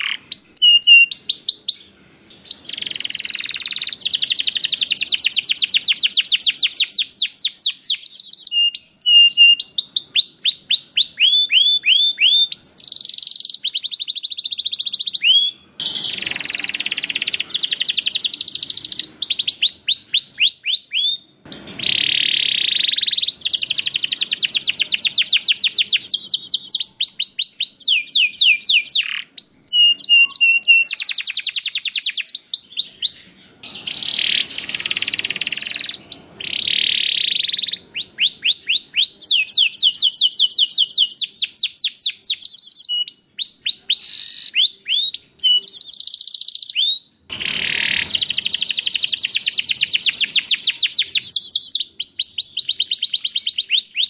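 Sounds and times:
canary singing trills: 0:00.0 - 0:54.0.

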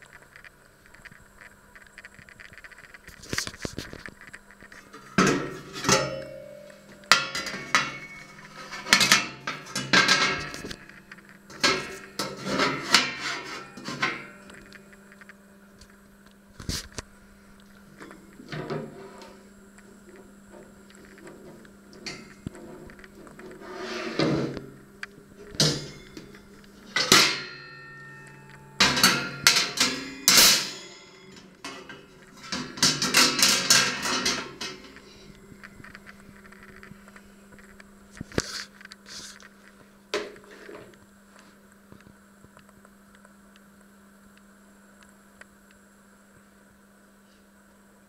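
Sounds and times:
metal grill parts clanking: 0:04.8 - 0:15.0, 0:25.4 - 0:35.2.

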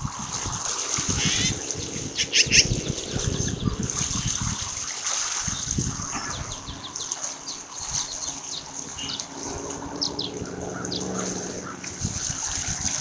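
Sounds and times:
crackling distorted rumble: 0:00.0 - 0:04.8.

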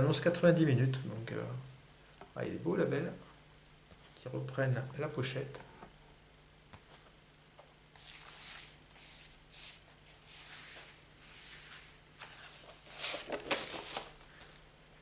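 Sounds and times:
paper sleeves sliding and rustling: 0:07.9 - 0:14.7.

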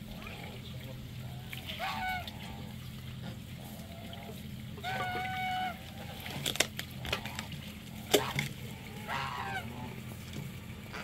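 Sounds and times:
goose honking: 0:01.2 - 0:06.4, 0:07.0 - 0:10.2.

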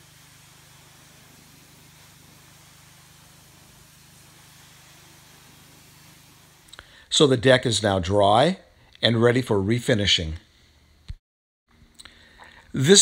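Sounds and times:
pressure washer running: 0:00.0 - 0:07.8.

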